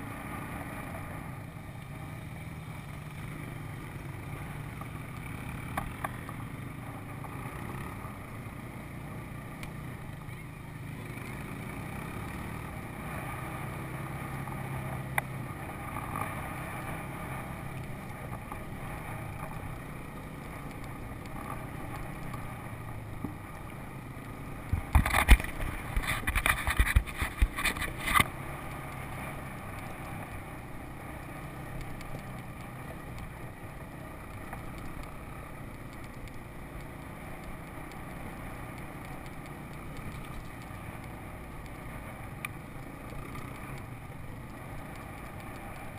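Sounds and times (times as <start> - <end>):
atv engine running: 0.0 - 45.9
knocks and rattles over rough ground: 24.5 - 30.4.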